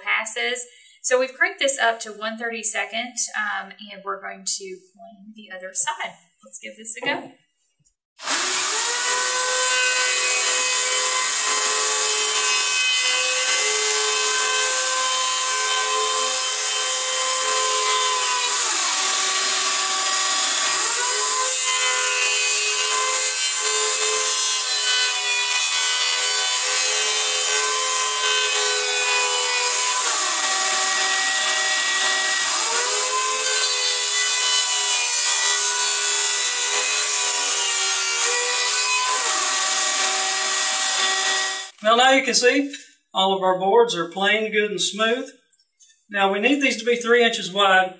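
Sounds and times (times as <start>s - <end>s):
electric planer shaving wood: 8.2s - 41.8s.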